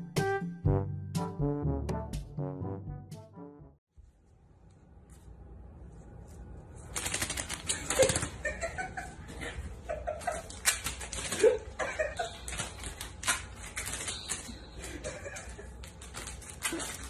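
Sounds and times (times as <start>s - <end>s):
soft laughter: 11.2s - 12.7s.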